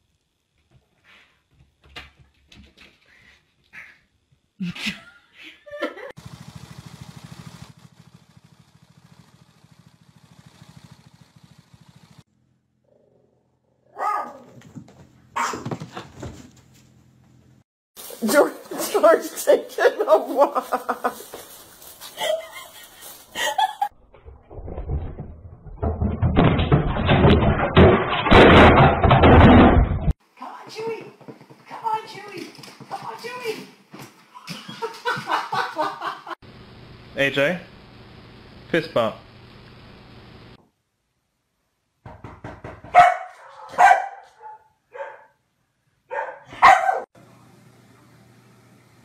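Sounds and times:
dog barking: 0:13.9 - 0:14.6, 0:15.3 - 0:15.7, 0:42.9 - 0:45.4, 0:46.1 - 0:47.1.

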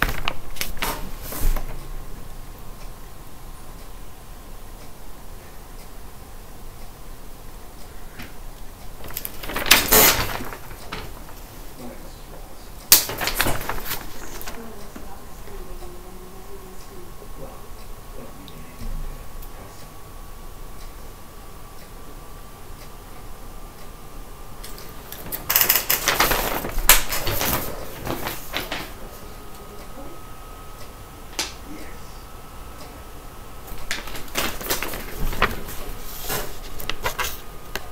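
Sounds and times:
paper rustling and crackling: 0:00.0 - 0:01.8, 0:09.0 - 0:11.8, 0:12.9 - 0:15.1, 0:24.8 - 0:29.0, 0:33.7 - 0:37.9.

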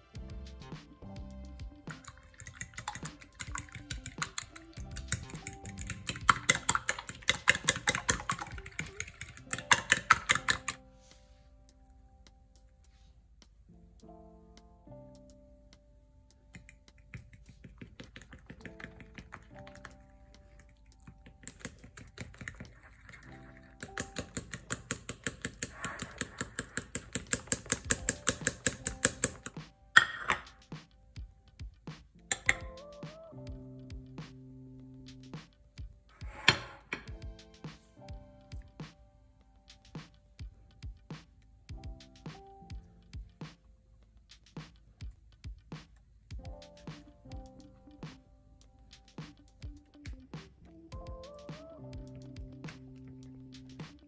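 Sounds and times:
faint background music: 0:00.0 - 0:54.0
fork beating batter in bowl: 0:01.9 - 0:10.8, 0:20.6 - 0:29.6.

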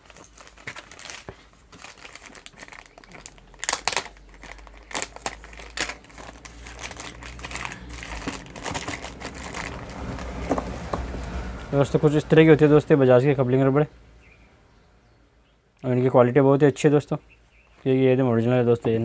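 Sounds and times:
plastic bag crinkling: 0:00.0 - 0:10.8.

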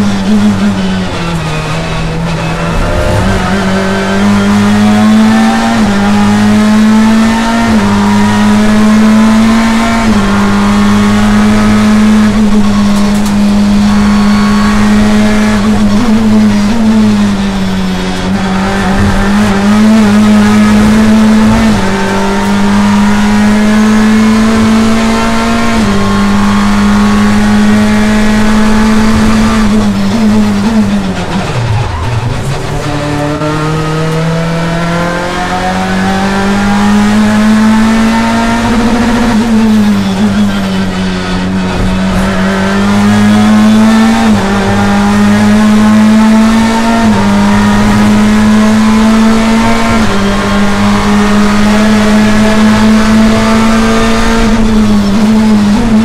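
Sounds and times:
race car engine at high revs: 0:00.0 - 0:56.0.

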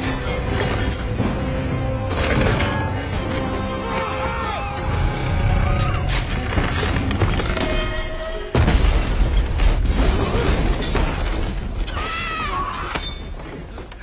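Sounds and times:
orchestral music score: 0:00.0 - 0:08.6
explosions and crashing: 0:04.8 - 0:11.9.

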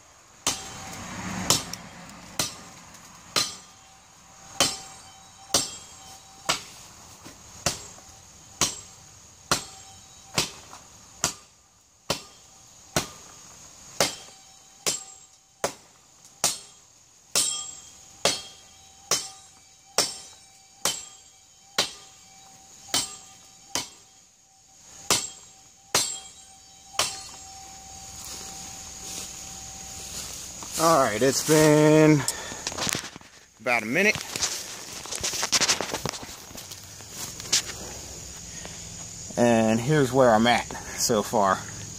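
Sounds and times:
sword chopping into tree trunk: 0:00.4 - 0:01.8, 0:02.4 - 0:02.7, 0:03.4 - 0:03.7, 0:04.6 - 0:05.9, 0:08.6 - 0:08.9, 0:09.5 - 0:11.5, 0:12.1 - 0:13.2, 0:14.0 - 0:16.8.

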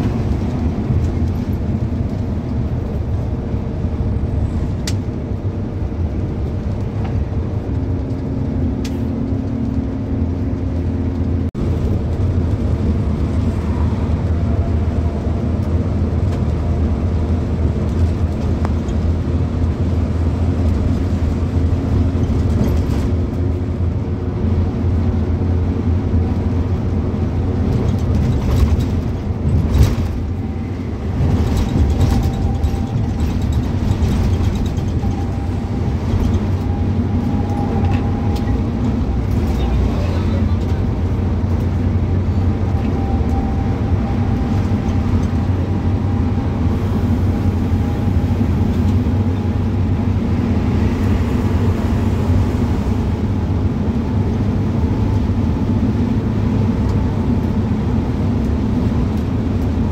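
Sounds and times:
vehicle engine and road drone: 0:00.0 - 0:59.9
knocks and rattles: 0:27.6 - 0:36.8.

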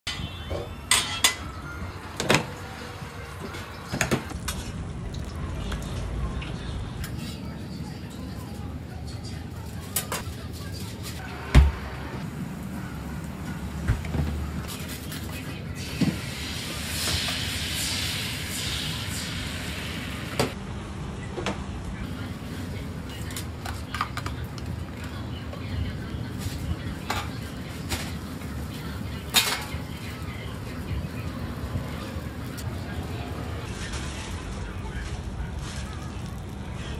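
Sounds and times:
metal utensils and trays knocking: 0:00.1 - 0:01.5.

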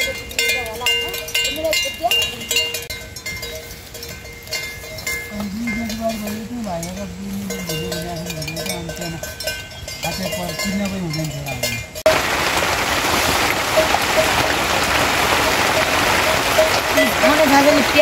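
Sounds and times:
livestock bells clinking: 0:00.0 - 0:12.2, 0:13.6 - 0:18.0
heavy rain: 0:12.0 - 0:18.0.

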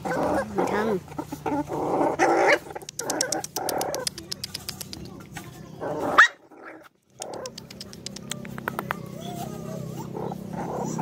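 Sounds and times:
dogs growling: 0:00.0 - 0:04.2, 0:05.8 - 0:11.0
dogs lapping and chewing: 0:00.0 - 0:06.2, 0:06.9 - 0:09.1.

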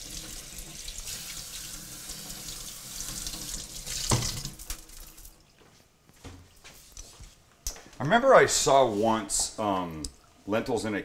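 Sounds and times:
faucet water splashing into sink: 0:00.0 - 0:05.4.

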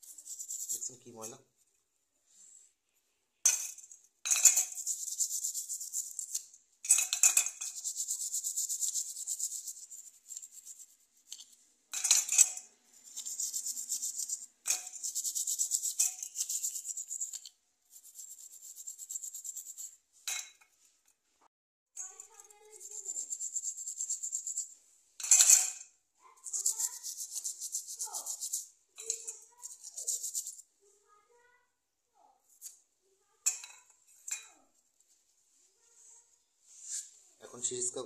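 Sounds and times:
brush scrubbing: 0:00.0 - 0:01.2, 0:04.5 - 0:06.6, 0:07.3 - 0:11.7, 0:12.4 - 0:20.0, 0:22.1 - 0:24.8, 0:26.4 - 0:30.6
metal clinking on bowl: 0:11.9 - 0:12.7, 0:25.2 - 0:25.8.

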